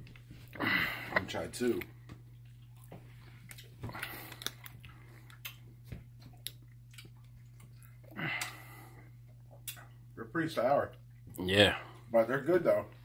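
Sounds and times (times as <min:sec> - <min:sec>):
steady low hum: 0:00.0 - 0:13.0
person chewing gummy candy: 0:01.7 - 0:08.6
wet mouth clicks: 0:03.5 - 0:05.6, 0:09.6 - 0:09.9.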